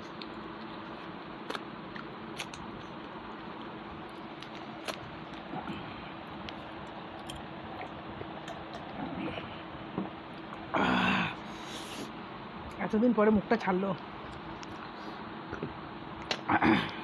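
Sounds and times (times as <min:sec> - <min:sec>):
chewing: 0:00.0 - 0:09.6, 0:14.0 - 0:17.0
faint low hum: 0:00.0 - 0:17.0.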